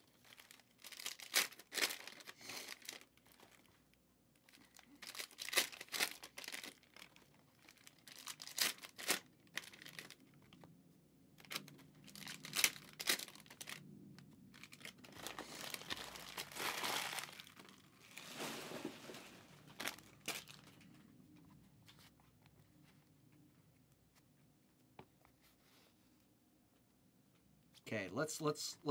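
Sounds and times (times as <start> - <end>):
cellophane wrappers tearing and crinkling: 0.2 - 3.6, 4.5 - 10.3, 11.4 - 13.8, 14.5 - 20.8.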